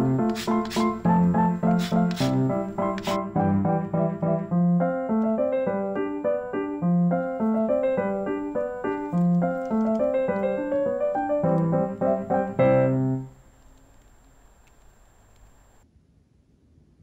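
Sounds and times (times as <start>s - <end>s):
gentle piano music: 0.0s - 13.5s.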